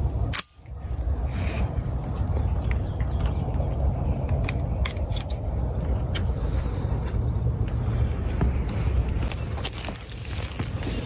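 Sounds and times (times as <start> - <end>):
low rumble on microphone: 0.0 - 11.0
footsteps through dry grass: 8.0 - 11.0.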